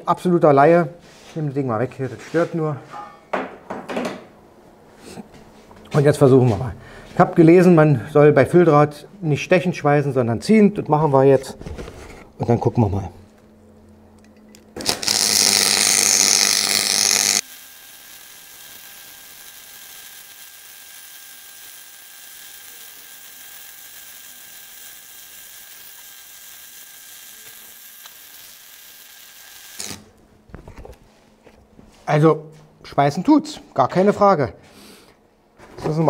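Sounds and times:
welding arc crackling and hissing: 14.8 - 30.1.

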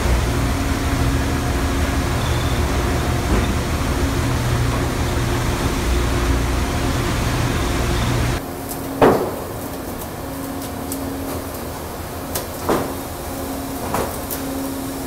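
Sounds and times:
machinery humming: 0.0 - 15.0.

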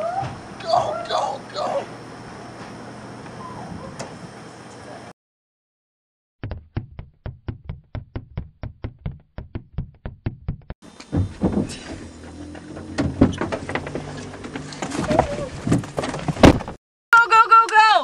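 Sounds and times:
thumps: 6.4 - 16.8.

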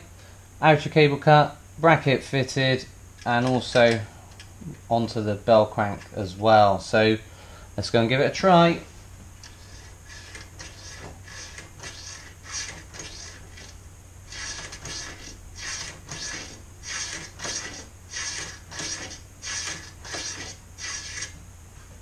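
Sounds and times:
throttle linkage rasps and clicks: 9.4 - 21.4.

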